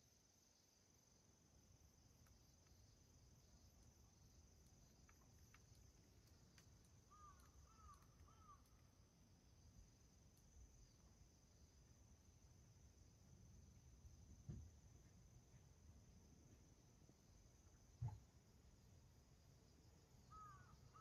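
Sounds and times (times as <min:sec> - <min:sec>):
faint ticks: 0:01.9 - 0:09.0, 0:09.7 - 0:11.1.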